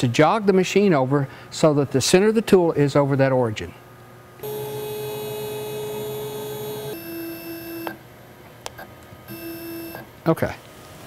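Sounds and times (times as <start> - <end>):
stepper motors whining: 4.4 - 8.0, 9.3 - 10.1.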